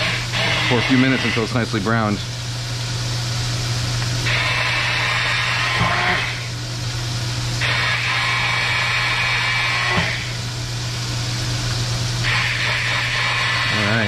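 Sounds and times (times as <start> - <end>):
electric blender running: 0.0 - 2.2, 4.2 - 6.6, 7.6 - 10.8, 11.8 - 14.0
steady low hum: 0.0 - 14.0.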